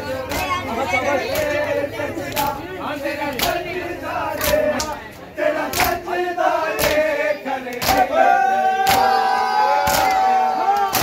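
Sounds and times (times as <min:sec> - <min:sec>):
men chanting together: 0:00.0 - 0:11.0
hands slapping chests: 0:05.7 - 0:06.0, 0:06.8 - 0:07.1, 0:07.7 - 0:08.1, 0:09.8 - 0:11.0.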